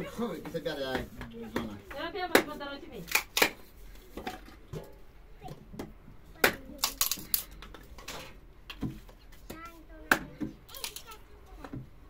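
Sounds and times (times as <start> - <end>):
sharp knocks and cracks: 1.2 - 3.6.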